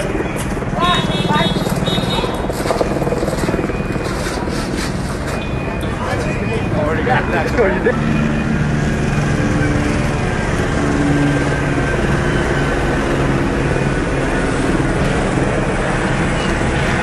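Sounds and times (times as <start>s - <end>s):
low engine drone: 0.0s - 17.0s
street noise: 0.0s - 17.0s.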